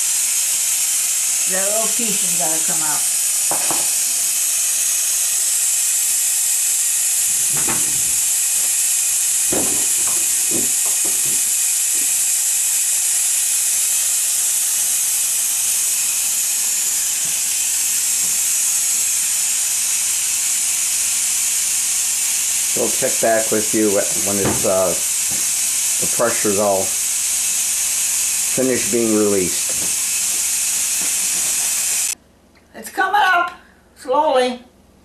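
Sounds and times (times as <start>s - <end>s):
pressure cooker steam hissing: 0.0s - 32.2s
light knocks: 7.4s - 8.8s, 9.5s - 11.6s.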